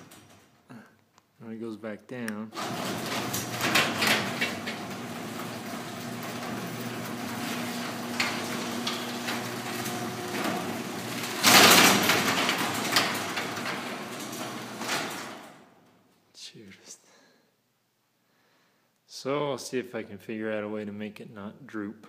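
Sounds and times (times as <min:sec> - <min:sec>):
garage door rattling down tracks: 0:00.0 - 0:00.6, 0:02.6 - 0:16.0
garage door loud bang: 0:02.5 - 0:15.9.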